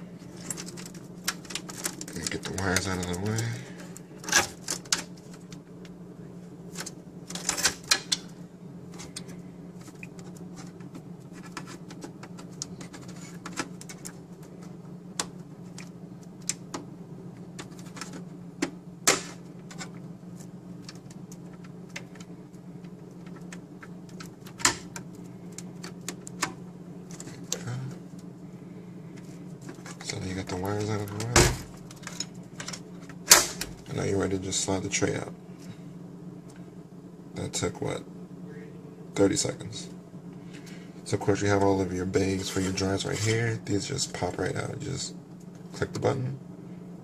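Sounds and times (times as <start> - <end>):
steady low hum: 0.0 - 47.0
cables and plastic parts clicking: 0.3 - 6.0, 8.9 - 18.8, 19.6 - 28.3.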